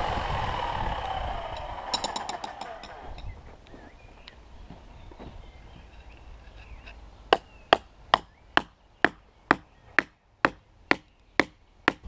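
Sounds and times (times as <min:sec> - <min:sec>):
hammer striking a stake: 0:01.6 - 0:03.3, 0:07.3 - 0:12.0.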